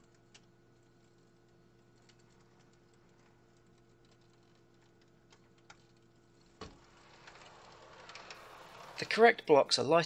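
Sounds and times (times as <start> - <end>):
low steady hum: 0.0 - 10.0
model train wheels clicking: 6.7 - 9.6.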